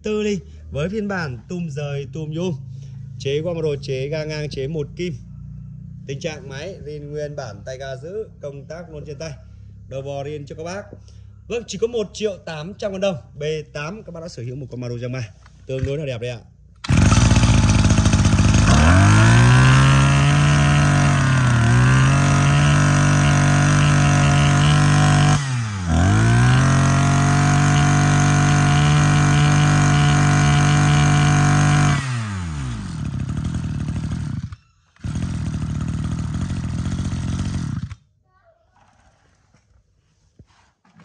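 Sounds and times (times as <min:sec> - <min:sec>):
brush cutter engine revving: 0:16.8 - 0:38.0.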